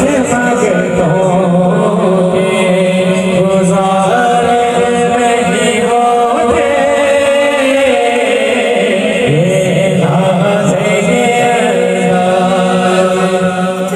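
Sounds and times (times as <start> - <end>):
man chanting slowly: 0.0 - 13.9.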